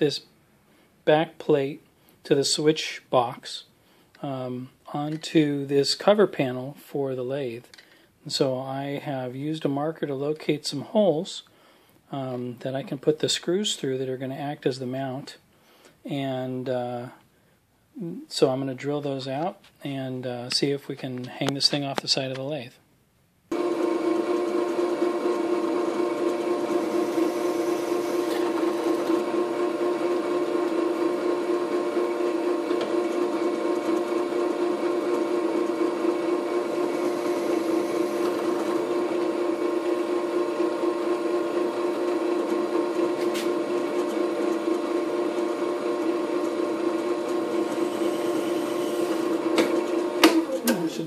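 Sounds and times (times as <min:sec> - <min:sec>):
drill press drilling metal: 0:23.5 - 0:51.0.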